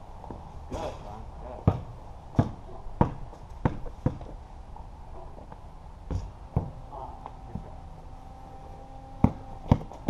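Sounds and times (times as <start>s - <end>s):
basketball bouncing on concrete: 1.6s - 4.4s, 6.1s - 6.8s, 9.2s - 10.0s.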